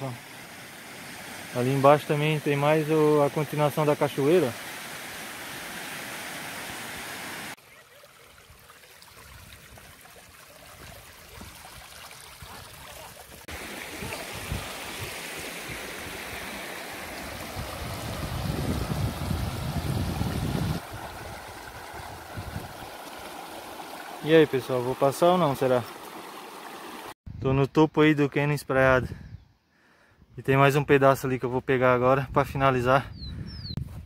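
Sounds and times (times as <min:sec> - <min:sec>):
waterfalls rushing: 0:00.0 - 0:07.6, 0:12.4 - 0:27.2
stream flowing over stones: 0:00.0 - 0:27.2.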